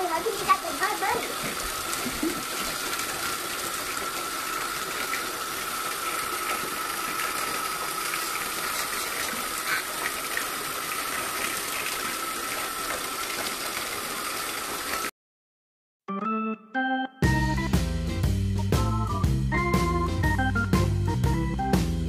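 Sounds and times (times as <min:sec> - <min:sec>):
bathtub tap running: 0:00.0 - 0:15.1
high whine in plumbing: 0:00.1 - 0:15.0.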